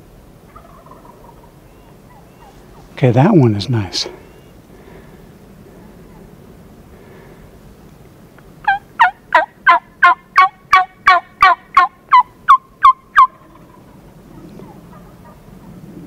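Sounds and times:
turkey call yelps: 0.5 - 2.9, 8.6 - 15.7.

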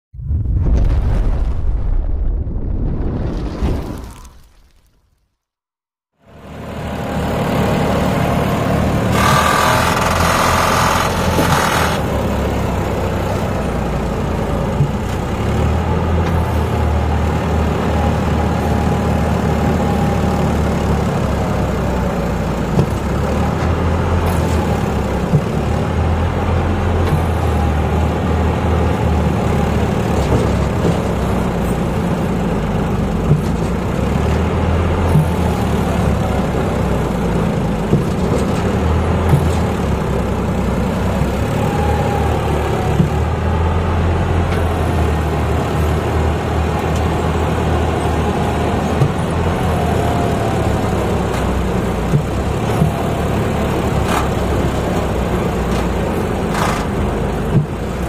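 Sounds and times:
harvester machinery: 6.2 - 58.0
tractor diesel engine running: 6.2 - 58.0.

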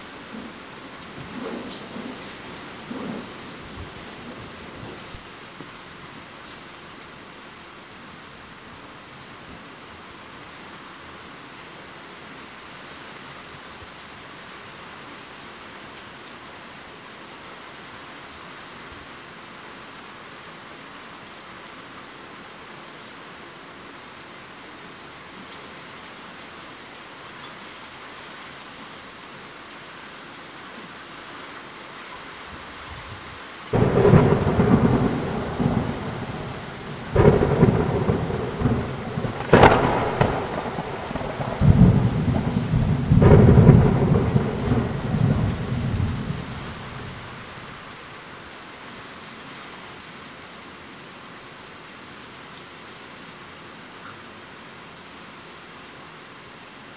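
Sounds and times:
rain hissing: 0.0 - 9.4, 23.6 - 50.7
thunder rumbling: 33.7 - 47.6.

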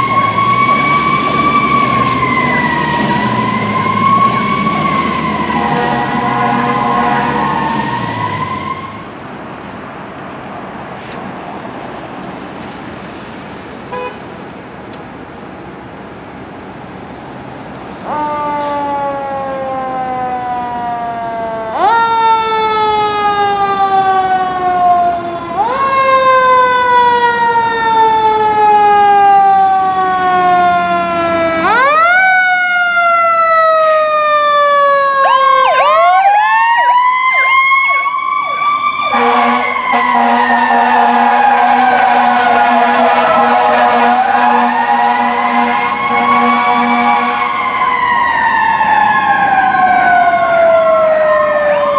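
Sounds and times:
fire engine siren: 0.0 - 9.2, 17.9 - 51.9
engine and street noise: 0.0 - 51.9.

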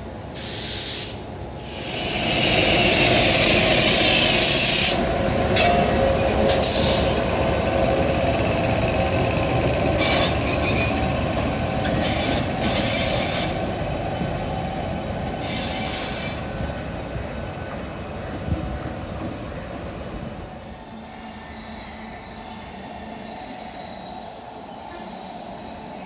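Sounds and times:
loud hiss: 0.4 - 5.0, 12.0 - 13.7, 15.4 - 16.5
electric locomotive rolling past: 1.2 - 26.0
wheels squealing on track: 9.9 - 13.5.

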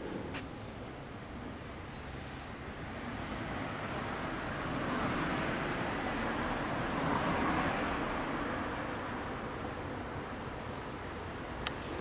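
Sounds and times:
motor vehicle passing: 2.3 - 11.0.

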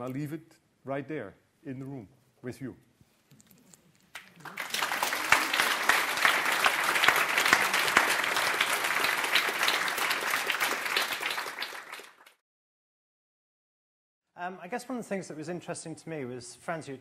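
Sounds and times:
audience applauding: 4.2 - 12.4.

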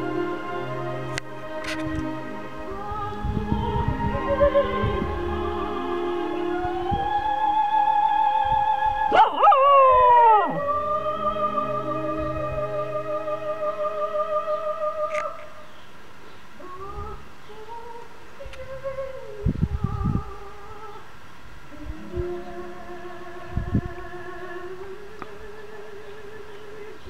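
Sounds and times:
opera-style singing: 0.0 - 15.8, 16.5 - 27.0
dog howling: 9.0 - 12.4.

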